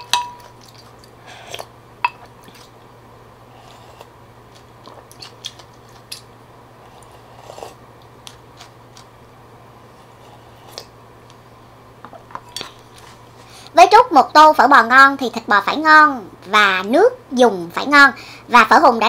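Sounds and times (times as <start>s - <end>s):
utensils clinking on ceramic bowl: 0.0s - 0.9s.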